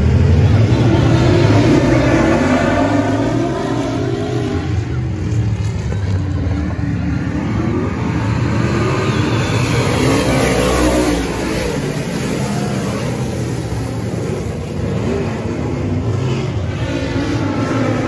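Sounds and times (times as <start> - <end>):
race car engines revving: 0.0 - 18.0.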